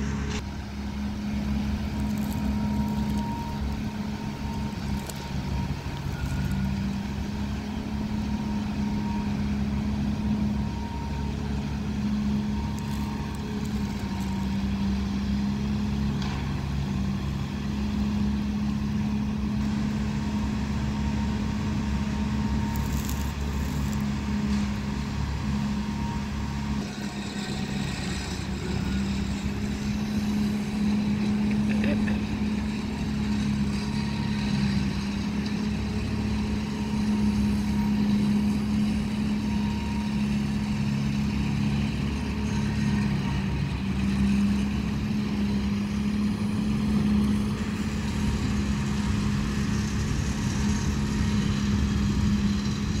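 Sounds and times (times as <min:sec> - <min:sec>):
leaf vacuum droning: 0:00.0 - 0:53.0.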